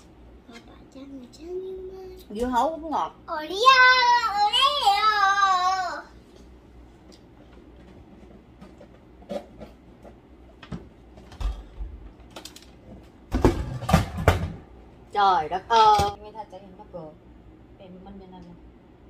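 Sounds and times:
electric fan knocking and bumping: 7.5s - 14.8s, 15.7s - 16.3s.

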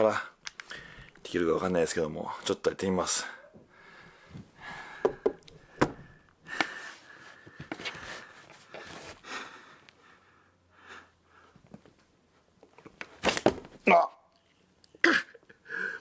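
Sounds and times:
man breathing hard: 3.4s - 11.7s, 15.6s - 16.0s.

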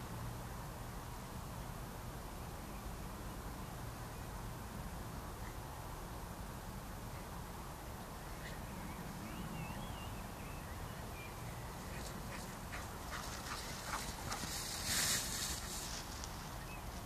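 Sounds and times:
dog running through grass: 11.8s - 17.0s.

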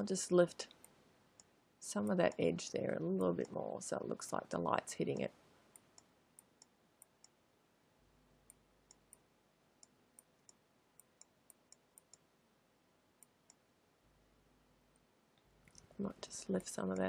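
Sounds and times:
faint computer mouse clicks: 9.8s - 12.2s.

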